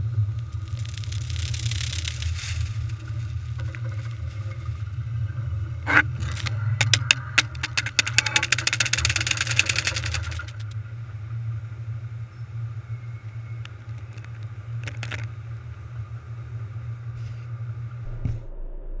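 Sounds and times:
low machinery hum: 0:00.0 - 0:19.0
water spray hissing on camera: 0:00.4 - 0:04.8.

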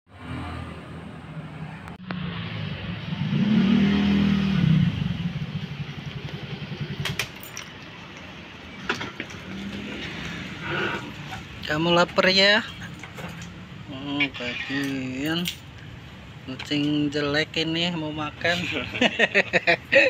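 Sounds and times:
vehicle engine passing: 0:00.1 - 0:11.6.

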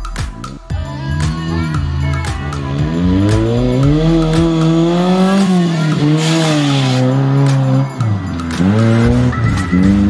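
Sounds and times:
buggy engine revving: 0:00.0 - 0:10.0.

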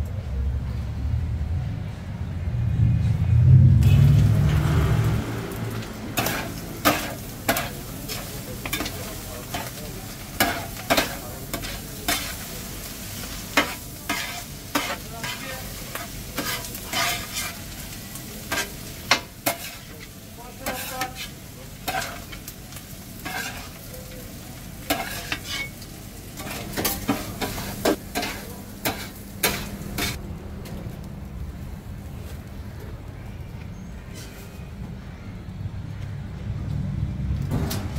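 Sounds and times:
food sizzling: 0:03.8 - 0:30.2
metal spatula scraping steel griddle: 0:05.8 - 0:09.8, 0:10.4 - 0:12.6, 0:13.2 - 0:17.7, 0:18.5 - 0:22.4, 0:23.2 - 0:23.8, 0:24.9 - 0:25.8, 0:26.4 - 0:30.2.

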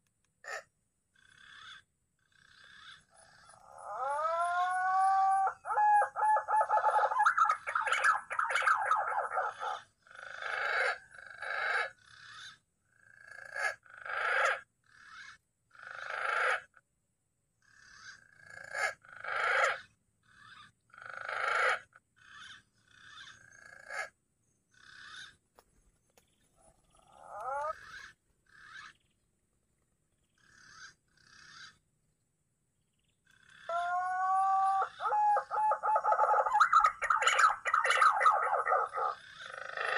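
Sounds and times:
pigeons whistling calls: 0:04.0 - 0:09.8, 0:33.7 - 0:39.9.

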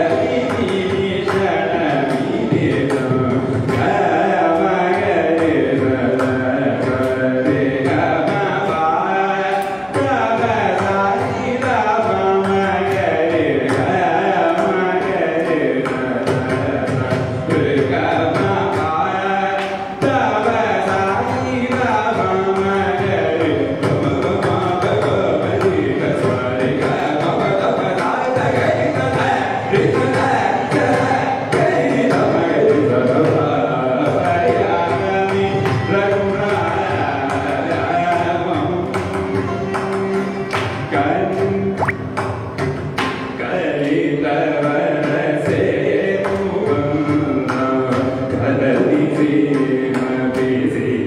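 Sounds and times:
man singing: 0:00.0 - 0:42.3, 0:43.2 - 0:51.0
violin melody: 0:38.9 - 0:42.2.

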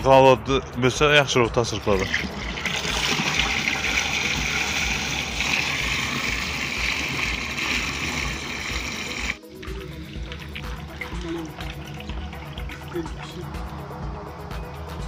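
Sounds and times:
milk pouring into water: 0:01.9 - 0:13.3.

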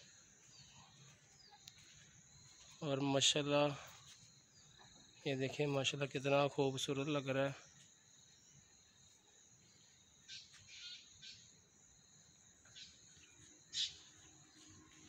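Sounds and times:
insects trilling: 0:00.0 - 0:15.0
short insect chirps: 0:07.6 - 0:15.0.

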